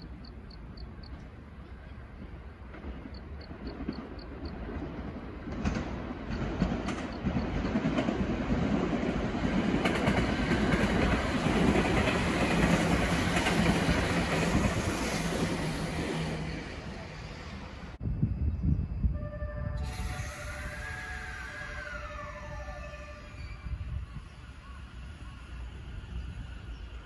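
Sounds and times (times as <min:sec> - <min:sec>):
train wheels clattering: 0:02.6 - 0:16.5.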